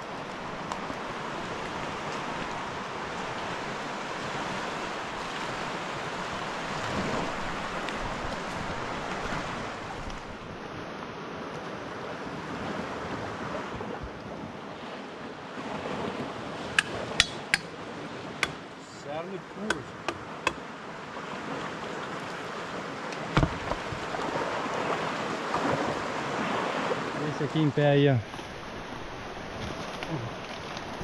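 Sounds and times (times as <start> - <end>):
river current rushing: 0.0 - 31.0
sharp knocks: 16.8 - 17.7, 19.7 - 20.6.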